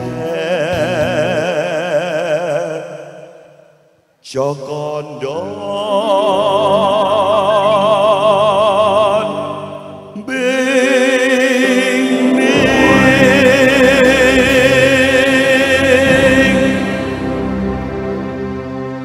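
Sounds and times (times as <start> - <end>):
man singing with vibrato: 0.0 - 17.8
choir singing a hymn: 10.2 - 19.0
backing music: 11.2 - 19.0.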